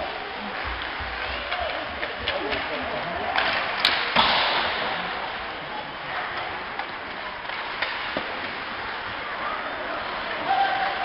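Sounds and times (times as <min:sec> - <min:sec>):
arena crowd hubbub: 0:00.0 - 0:11.0
hockey stick hitting puck: 0:03.3 - 0:05.0, 0:06.4 - 0:08.6.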